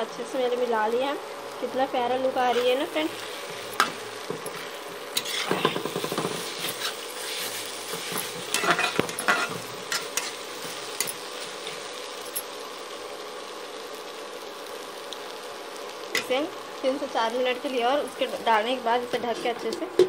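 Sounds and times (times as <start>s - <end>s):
frying sizzle: 0.0s - 20.0s
spatula scraping metal pan: 4.5s - 10.4s.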